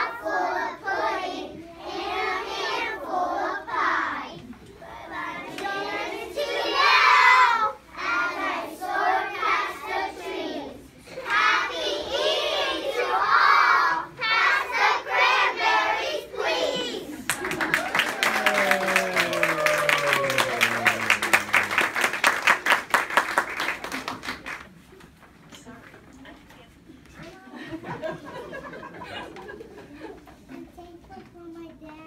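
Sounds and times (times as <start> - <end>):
young children singing: 0.0 - 17.2.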